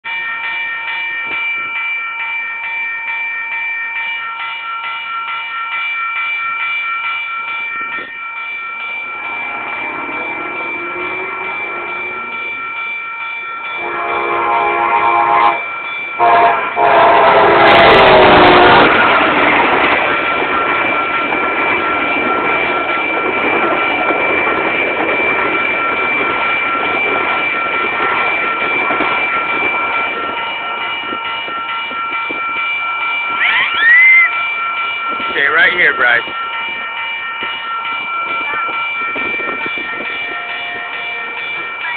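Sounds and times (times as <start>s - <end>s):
crossing bells ringing: 0.0s - 41.9s
train cars rumbling: 4.0s - 41.9s
train horn blasts: 13.8s - 19.2s.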